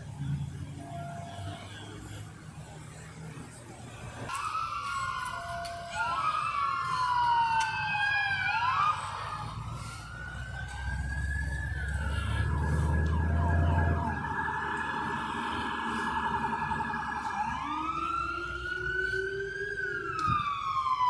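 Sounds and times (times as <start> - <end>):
police sirens wailing: 0.0 - 21.0
vehicle engine rumbling: 0.0 - 21.0
siren yelp: 4.3 - 21.0.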